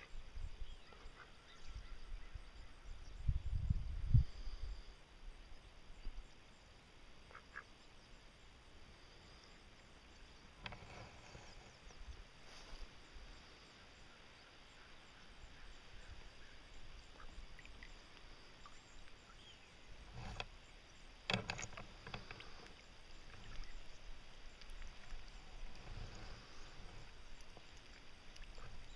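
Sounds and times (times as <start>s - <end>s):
faint water sloshing: 8.8s - 28.9s.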